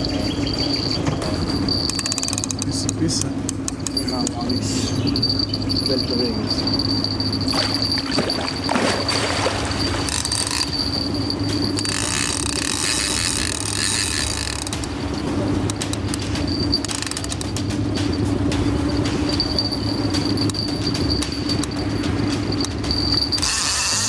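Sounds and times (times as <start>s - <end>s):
steady low hum: 0.0s - 24.0s
fishing reel clicking: 1.6s - 8.0s, 9.8s - 17.6s, 19.3s - 24.0s.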